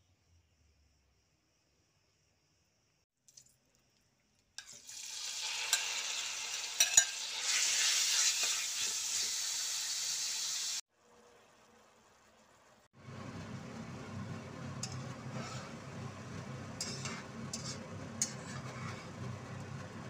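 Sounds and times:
meat sizzling in a wok: 4.6 - 10.8.

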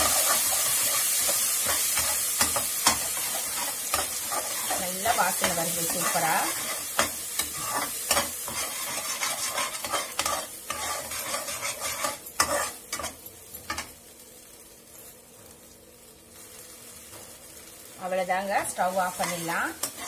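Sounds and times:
metal spoon scraping a pan: 0.0 - 13.9, 18.6 - 20.0
chutney sizzling: 0.0 - 20.0.

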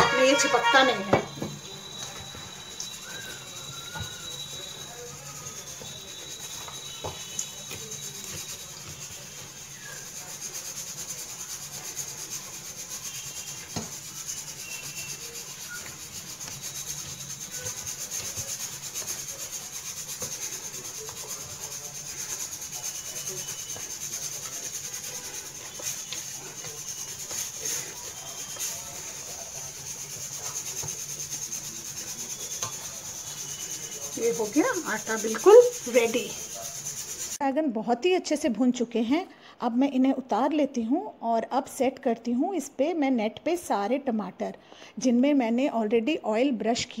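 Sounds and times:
hands kneading dough: 1.8 - 37.4.

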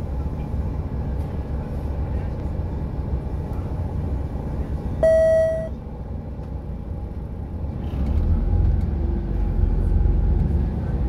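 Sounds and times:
bus diesel engine rumbling: 0.0 - 11.0
electronic beep: 5.0 - 5.7.

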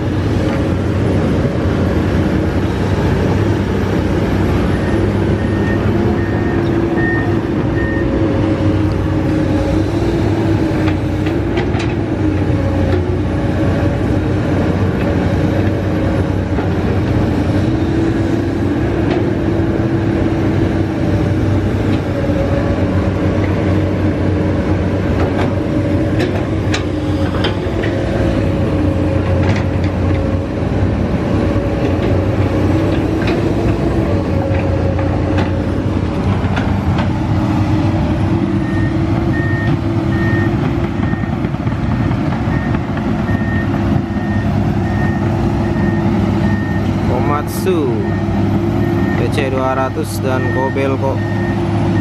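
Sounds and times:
excavator engine running: 0.0 - 52.0
alarm beeping: 50.2 - 52.0.

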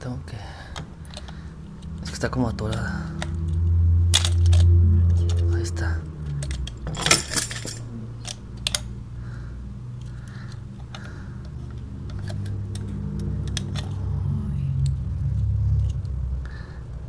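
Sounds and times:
low steady hum: 0.0 - 17.0
metal keys clinking in plastic box: 6.4 - 8.4.

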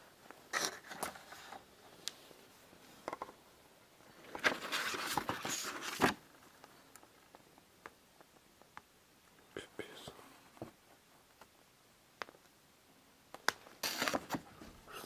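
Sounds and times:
paper rustling and scraping: 4.2 - 6.2, 13.8 - 14.4.

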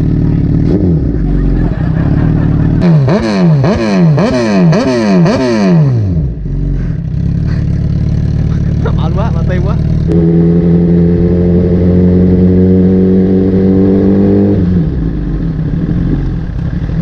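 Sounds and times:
motorcycle engine idling: 0.0 - 3.8, 6.3 - 10.2
motorcycle throttle blips: 0.0 - 17.0.

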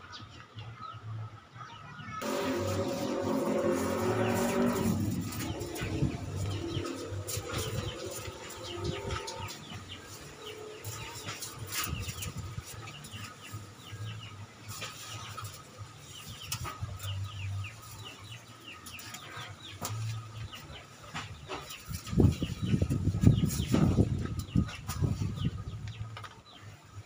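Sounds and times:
small birds chirping: 0.0 - 27.0
gusty wind buffeting: 2.2 - 14.2, 21.9 - 26.0.

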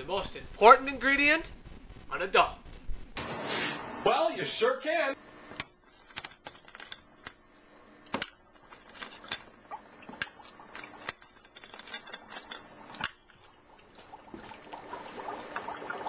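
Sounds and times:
water bubbling and fizzing: 9.5 - 11.4, 12.7 - 16.0.

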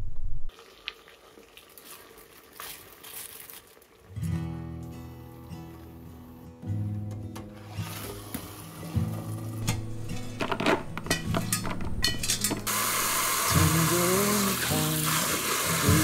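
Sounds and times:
soft background music: 4.3 - 16.0
metal pot and basket clinking: 9.6 - 12.7
water running into sink: 12.3 - 16.0.

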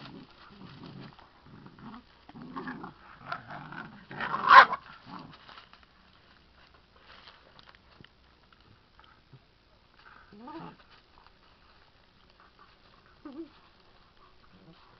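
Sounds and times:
dogs growling in play: 0.0 - 5.5, 10.0 - 11.6, 12.2 - 14.9.

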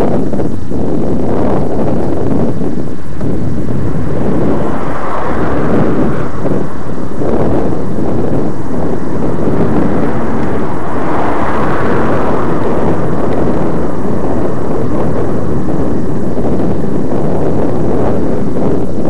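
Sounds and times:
wind rumble on microphone: 0.0 - 19.0.

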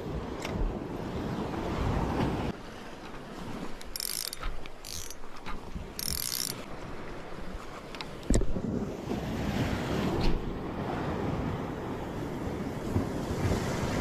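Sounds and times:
wind: 0.0 - 14.0
fishing reel whirring: 3.8 - 5.3, 6.0 - 6.7
clicks from handling rod: 3.8 - 6.7
surf: 7.1 - 14.0.

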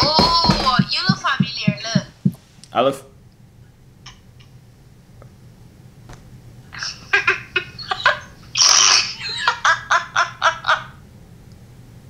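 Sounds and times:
girls giggling and shrieking: 6.8 - 10.4.

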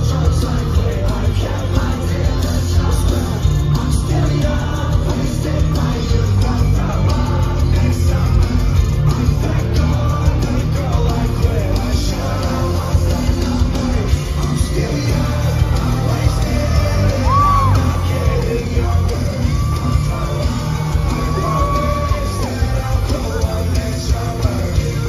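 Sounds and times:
live rock band playing: 0.0 - 25.0
person singing: 0.0 - 25.0
fans yelling: 14.5 - 25.0.

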